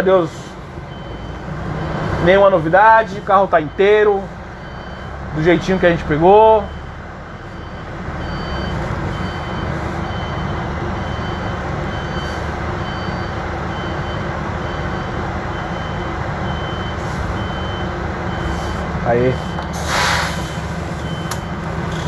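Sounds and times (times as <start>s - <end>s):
bus engine running: 0.0s - 22.0s
reverse alarm beeping: 3.6s - 5.1s, 6.6s - 18.8s, 20.4s - 22.0s.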